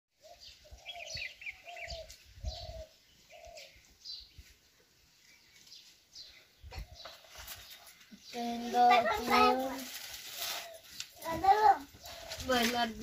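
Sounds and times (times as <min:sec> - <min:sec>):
small birds chirping: 0:00.1 - 0:13.0
dove cooing: 0:00.2 - 0:03.8.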